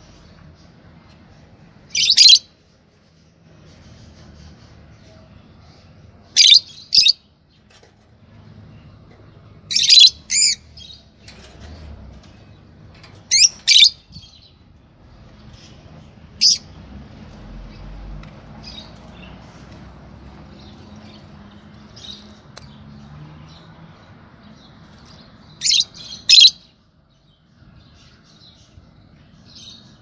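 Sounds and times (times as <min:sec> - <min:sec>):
lovebirds shrill calls: 0:01.9 - 0:02.5, 0:06.3 - 0:07.2, 0:09.7 - 0:11.6, 0:13.3 - 0:14.5, 0:16.4 - 0:16.7, 0:25.6 - 0:26.7.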